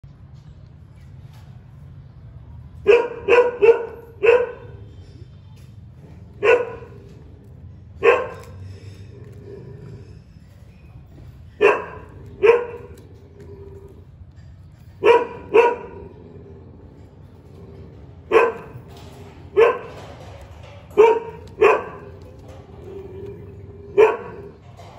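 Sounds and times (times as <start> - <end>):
dog barking: 2.8 - 5.0, 6.3 - 7.2, 8.0 - 8.6, 11.5 - 13.1, 15.0 - 16.2, 18.3 - 18.9, 19.5 - 20.0, 20.9 - 22.3, 23.9 - 24.6.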